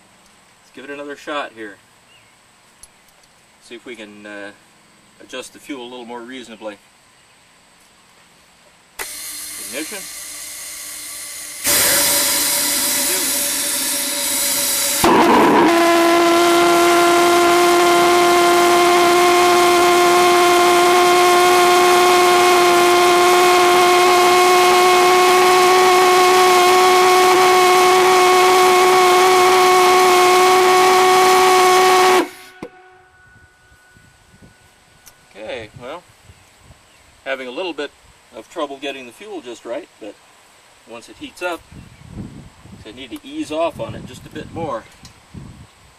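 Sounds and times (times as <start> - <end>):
pulsejet engine bang: 9.0 - 19.8
hiss of starting air: 9.0 - 32.6
pulsejet buzzing drone: 9.0 - 33.7.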